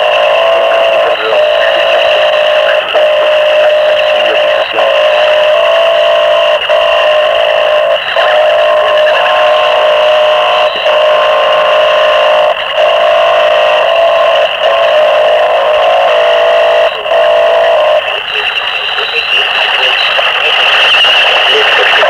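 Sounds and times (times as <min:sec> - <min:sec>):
distorted electronic noise: 0:00.0 - 0:22.0
droning tones: 0:00.0 - 0:22.0.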